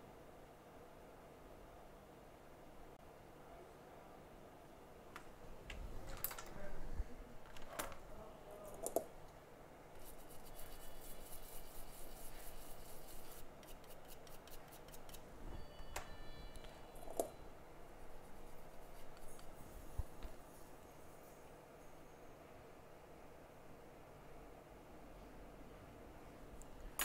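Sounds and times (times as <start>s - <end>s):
fine metal scratching: 10.0s - 17.2s
high ringing tone: 15.4s - 22.5s.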